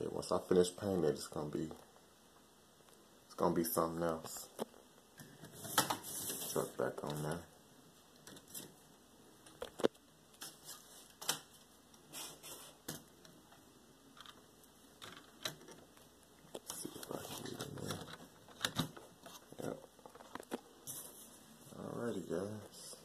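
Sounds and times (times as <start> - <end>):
soft rustling: 15.8 - 23.0.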